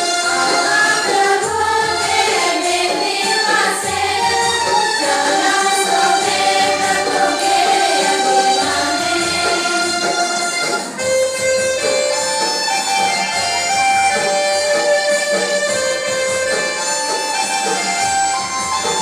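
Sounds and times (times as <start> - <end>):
group singing: 0.0 - 11.0
instrumental accompaniment: 0.0 - 19.0.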